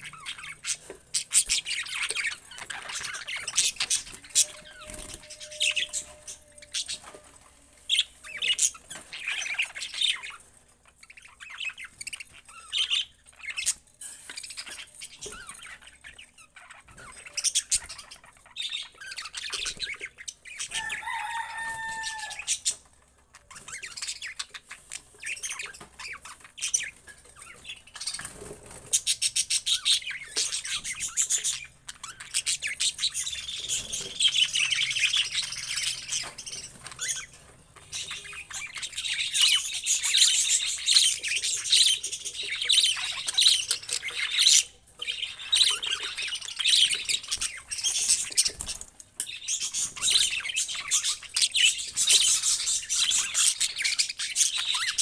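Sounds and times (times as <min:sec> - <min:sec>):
budgerigars chattering: 0:23.5 - 0:55.0.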